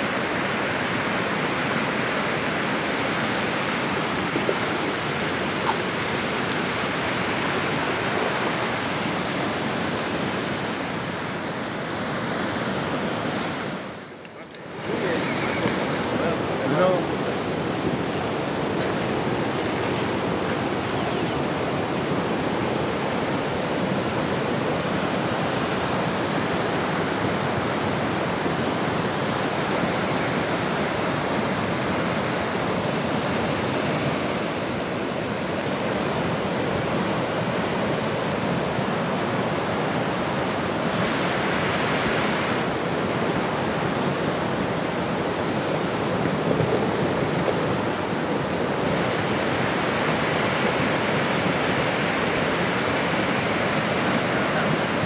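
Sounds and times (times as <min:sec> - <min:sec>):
river floodwater rushing: 0:00.0 - 0:55.0.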